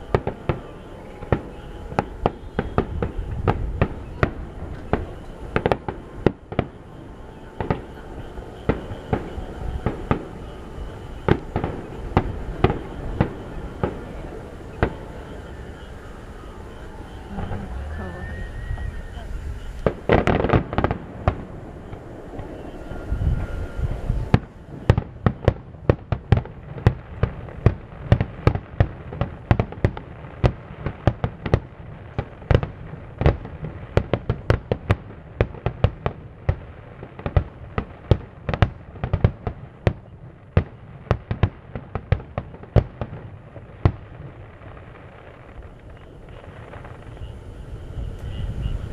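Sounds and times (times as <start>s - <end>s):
fireworks bursting: 0.0s - 48.9s.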